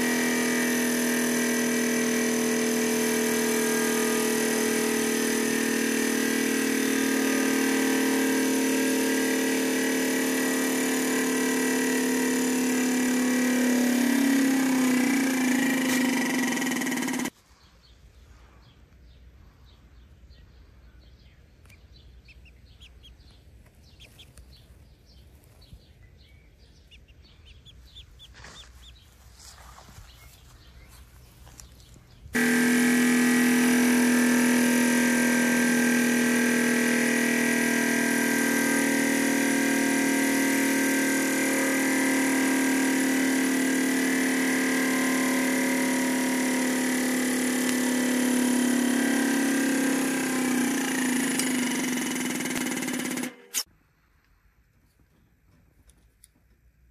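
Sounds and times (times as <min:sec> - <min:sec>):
hydraulic press running: 0:00.0 - 0:17.4, 0:32.4 - 0:53.7
chick peeping: 0:21.6 - 0:24.6, 0:26.8 - 0:29.1.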